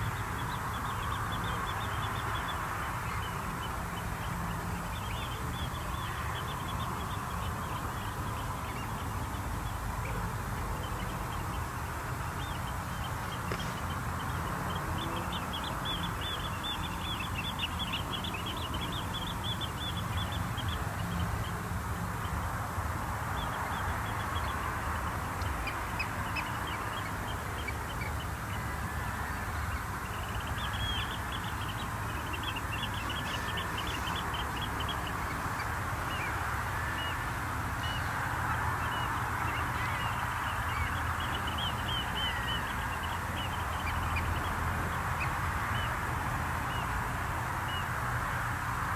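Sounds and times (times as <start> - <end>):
shorebirds and gulls calling: 23.4 - 46.9.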